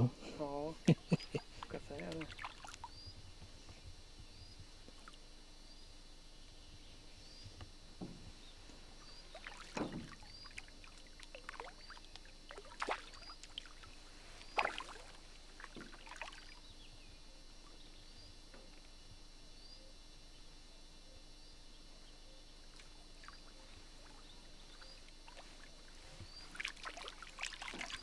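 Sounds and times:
fish splashing in water: 1.7 - 3.0, 9.3 - 16.6, 23.2 - 28.0.

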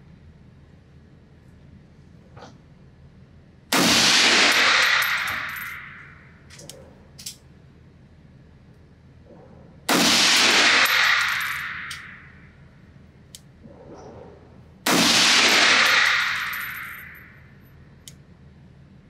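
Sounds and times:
rifle shots echoing: 3.7 - 6.2, 9.9 - 12.3, 14.9 - 17.3.

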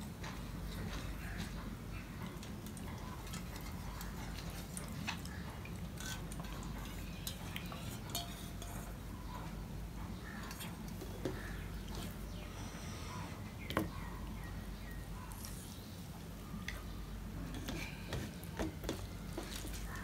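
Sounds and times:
wet squelching of food mixing: 0.1 - 20.0
steel bowl clicking on plate: 6.3 - 8.9.

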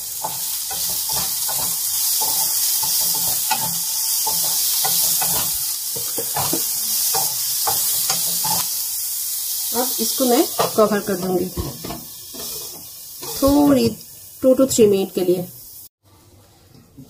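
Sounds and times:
spatula scraping pan: 0.0 - 8.8, 10.0 - 14.0
vegetables sizzling in oil: 0.0 - 15.9.

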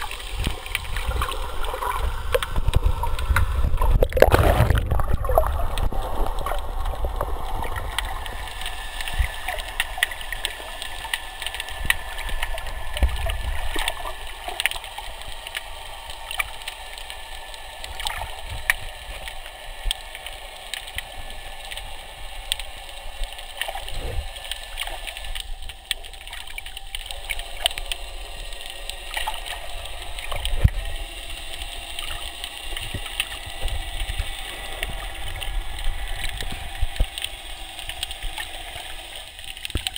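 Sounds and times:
sharp clicks and crackles: 0.0 - 21.9, 22.5 - 39.9
underwater water rushing: 0.0 - 39.9.

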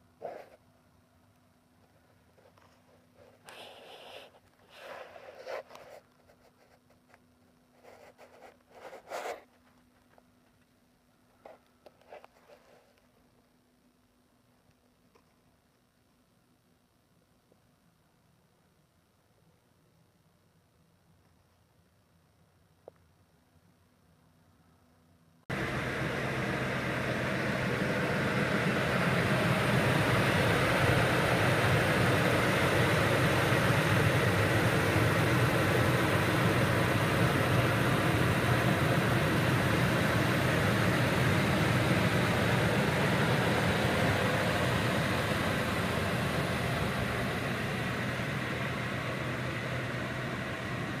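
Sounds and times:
pickup engine idling: 25.5 - 51.0.

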